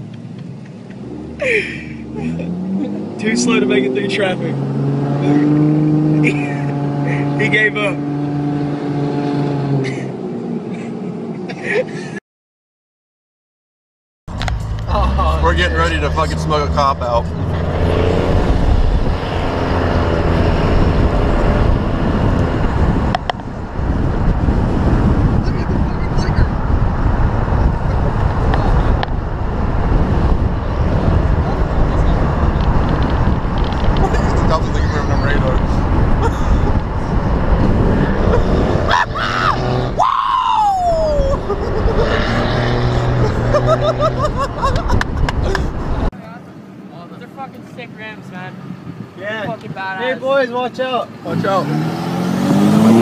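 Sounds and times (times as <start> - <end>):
road noise: 0.0 - 12.2, 14.3 - 53.0
truck engine drone: 14.3 - 46.1
wind noise on camera: 17.3 - 46.1, 48.7 - 49.9
person yelling: 38.9 - 41.5.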